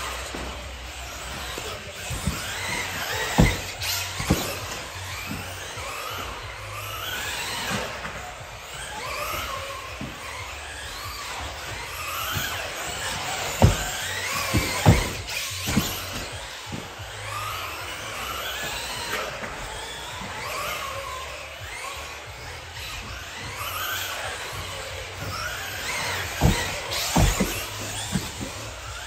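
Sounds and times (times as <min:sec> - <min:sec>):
rc car motor whining: 0:00.0 - 0:29.0
sharp thumps: 0:00.2 - 0:05.6, 0:11.5 - 0:16.9, 0:25.2 - 0:29.0.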